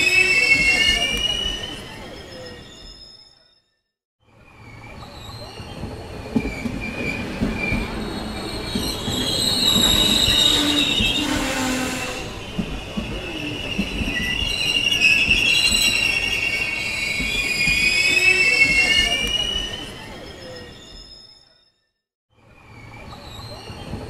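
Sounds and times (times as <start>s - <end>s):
train brakes squealing: 0.0s - 3.7s, 4.5s - 21.8s, 22.5s - 24.0s.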